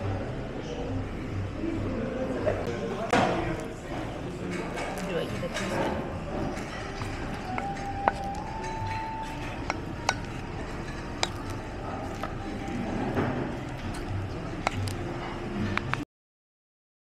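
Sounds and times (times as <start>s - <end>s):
paddle clicking against metal pot: 6.6s - 12.8s
wooden paddle scraping rice in pot: 9.2s - 14.9s.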